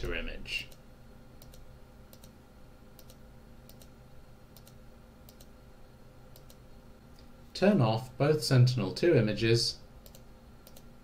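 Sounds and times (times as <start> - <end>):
low steady hum: 0.0 - 11.0
faint computer mouse clicks: 3.0 - 3.9, 4.6 - 5.5, 6.3 - 6.6, 10.0 - 10.9.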